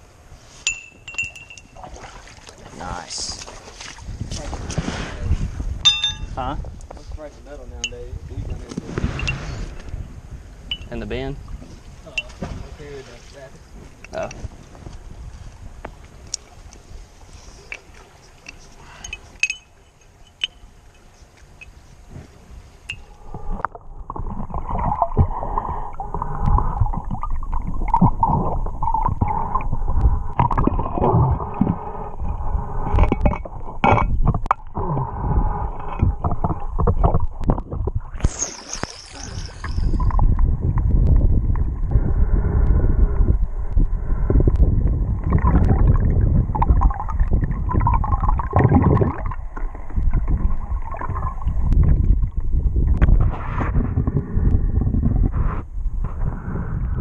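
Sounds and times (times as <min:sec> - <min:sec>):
underwater rumble and gurgling: 0:01.8 - 0:19.0, 0:21.7 - 0:57.0
underwater knocks: 0:32.9 - 0:34.8, 0:35.9 - 0:38.0.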